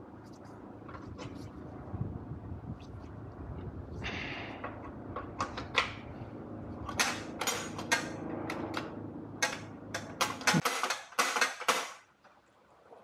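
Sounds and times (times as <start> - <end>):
low hum: 0.0 - 10.6.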